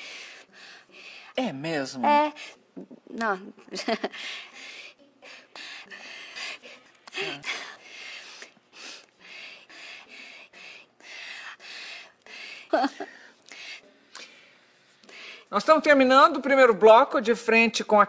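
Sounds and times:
woman panting: 4.1s - 14.4s.

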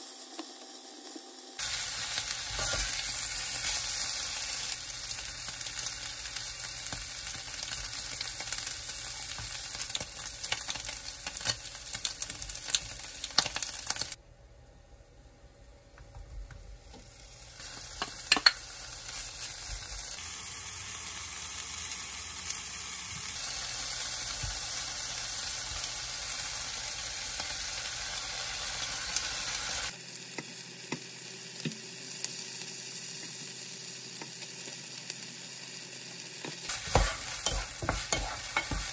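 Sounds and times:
meat sizzling in a pan: 0.0s - 14.2s, 17.0s - 38.9s
spatula stirring in pan: 36.7s - 38.9s.

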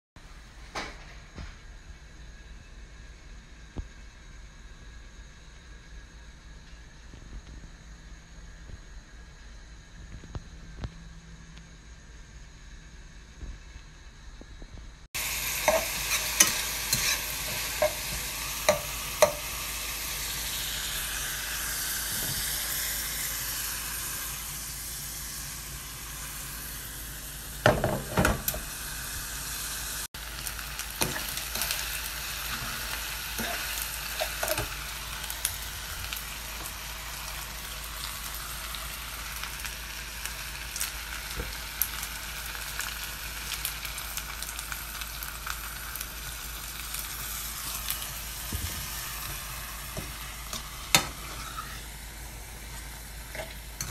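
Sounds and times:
food sizzling in a frying pan: 15.1s - 53.9s
utensil scraping a pan: 15.6s - 18.1s, 50.9s - 51.9s.

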